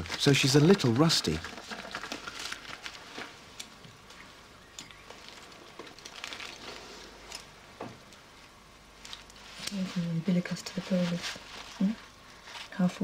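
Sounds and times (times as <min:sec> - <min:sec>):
paper drapes rustling: 0:09.0 - 0:13.0.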